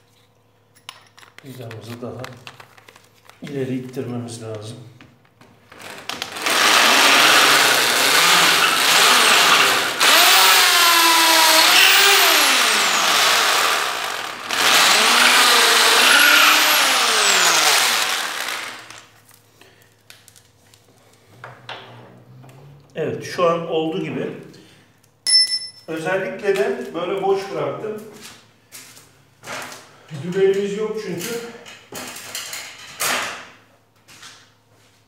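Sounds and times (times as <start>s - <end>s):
electric drill boring into wood: 5.8s - 19.1s.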